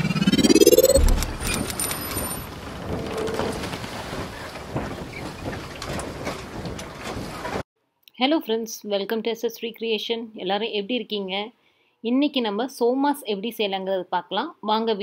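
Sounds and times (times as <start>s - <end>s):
rising whoosh: 0.0s - 2.4s
deep boom: 0.4s - 1.7s.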